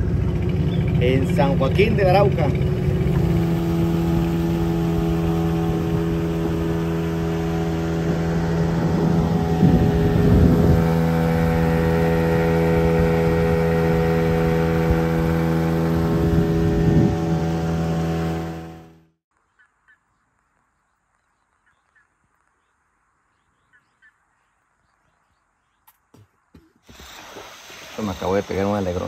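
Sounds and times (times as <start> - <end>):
motorboat engine running: 0.0 - 19.2.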